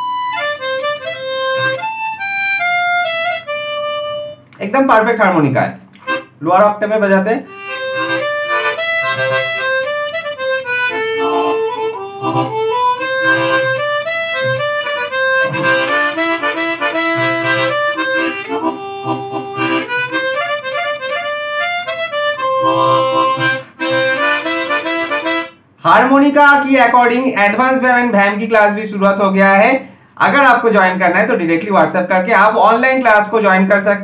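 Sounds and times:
harmonica melody: 0.0 - 4.5, 6.0 - 6.4, 7.5 - 25.8.

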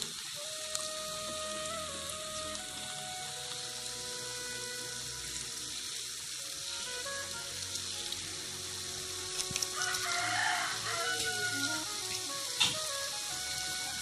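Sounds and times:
batter sizzling in hot oil: 0.0 - 14.0
rooster crowing: 9.7 - 11.9.

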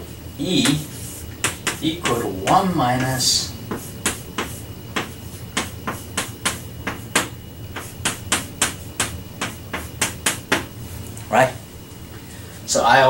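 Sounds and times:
chalk tapping on blackboard: 0.5 - 10.8.

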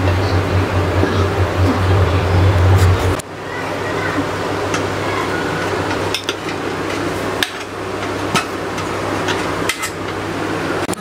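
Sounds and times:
low hum: 0.0 - 3.4.

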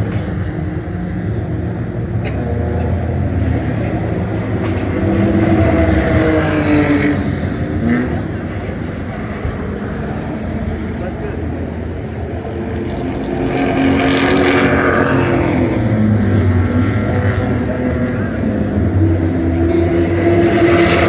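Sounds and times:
race car engines: 0.0 - 21.0
race car driving past: 12.6 - 21.0.

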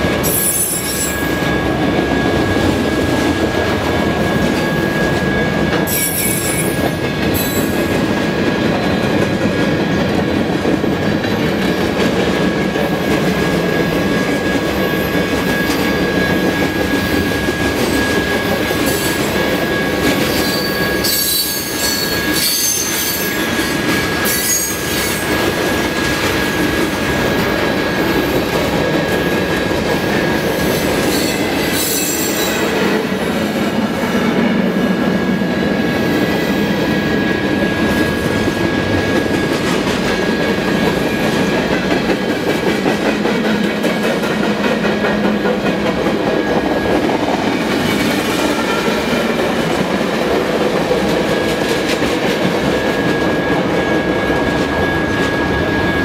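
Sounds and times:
steady high tone: 0.0 - 7.8
train wheels rumbling on rail: 0.0 - 56.0
high-pitched wheel squeals: 0.2 - 2.3, 4.3 - 7.8, 18.9 - 25.2, 30.7 - 32.8.

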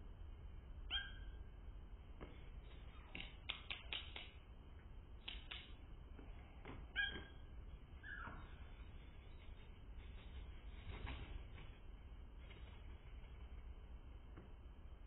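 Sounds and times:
slowed bird calls: 6.9 - 10.8.

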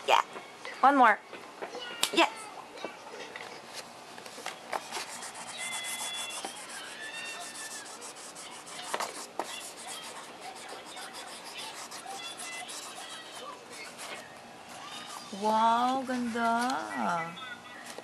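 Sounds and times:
crayon scribbling on paper: 4.8 - 14.2.

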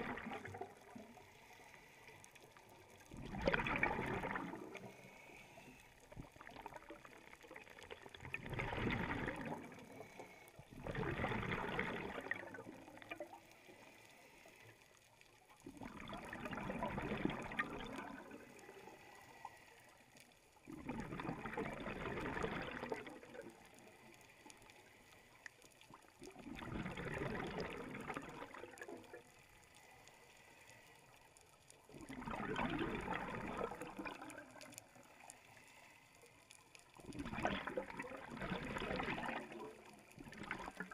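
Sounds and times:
diver exhaling bubbles underwater: 0.0 - 1.2, 3.0 - 5.2, 6.2 - 13.4, 15.6 - 18.8, 20.6 - 23.6, 26.2 - 29.2, 31.9 - 34.8, 37.0 - 40.9
breathing through a regulator: 0.1 - 2.8, 4.1 - 6.2, 9.3 - 15.0, 18.0 - 20.2, 22.6 - 25.7, 29.2 - 31.4, 33.3 - 37.0.

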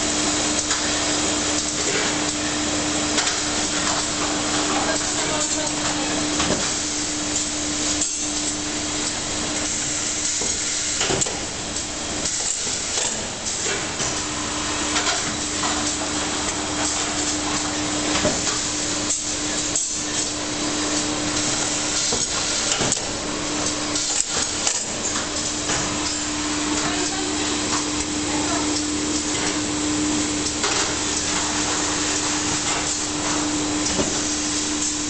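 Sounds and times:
machine hum: 14.1 - 35.0.

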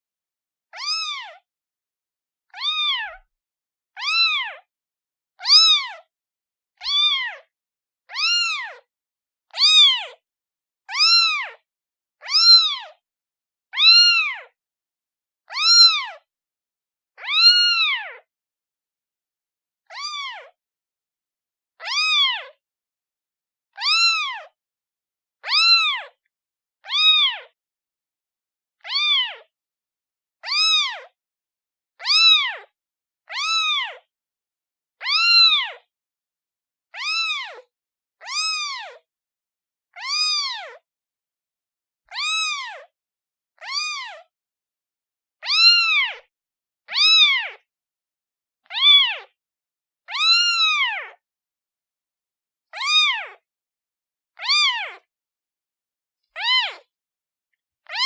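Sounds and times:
kitten meowing: 0.7 - 1.4, 2.5 - 3.3, 3.9 - 4.7, 5.4 - 6.1, 6.8 - 7.5, 8.1 - 8.9, 9.5 - 10.2, 10.9 - 11.6, 12.2 - 13.0, 13.8 - 14.6, 15.5 - 16.3, 17.2 - 18.2, 19.9 - 20.6, 21.8 - 22.6, 23.8 - 24.6, 25.4 - 26.2, 26.8 - 27.6, 28.8 - 29.5, 30.4 - 31.2, 32.0 - 32.7, 33.3 - 34.1, 35.0 - 35.9, 37.0 - 39.0, 39.9 - 40.8, 42.1 - 42.9, 43.6 - 44.3, 45.4 - 46.3, 46.9 - 47.6, 48.6 - 49.3, 50.1 - 51.2, 52.7 - 53.4, 54.4 - 55.1, 56.3 - 56.9.

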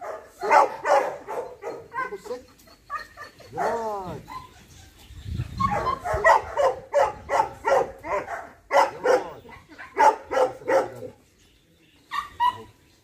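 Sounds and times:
dog barking deeply: 0.0 - 2.3, 5.6 - 11.1.

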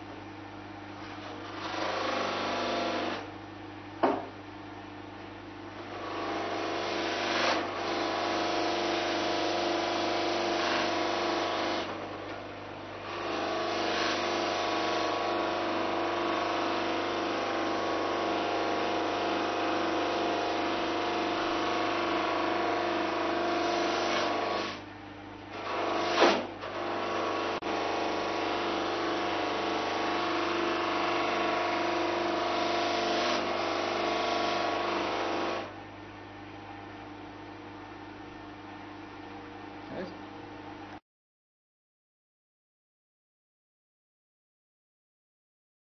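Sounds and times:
sharp knock: 4.0 - 4.3
buffing machine motor hum: 5.8 - 35.8.

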